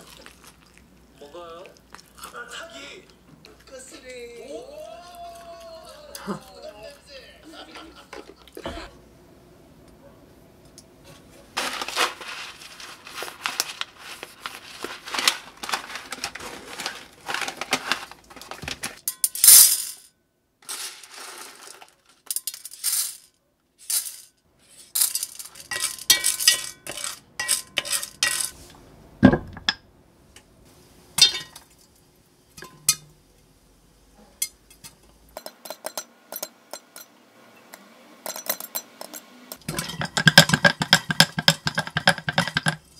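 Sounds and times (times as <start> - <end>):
foil wrapper crinkling: 11.6 - 19.0, 20.6 - 22.3
popcorn kernels rattling in pot: 11.6 - 28.6, 38.3 - 42.9
pot lid clinking: 25.1 - 28.6, 31.2 - 31.6, 32.6 - 33.1, 38.2 - 42.8.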